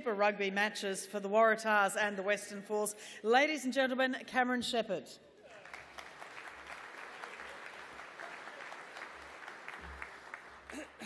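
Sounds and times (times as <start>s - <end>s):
crowd applauding: 5.4s - 11.0s.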